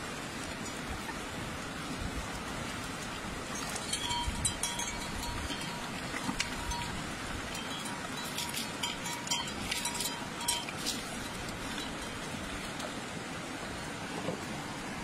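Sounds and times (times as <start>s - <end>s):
river water rushing: 0.0s - 15.0s.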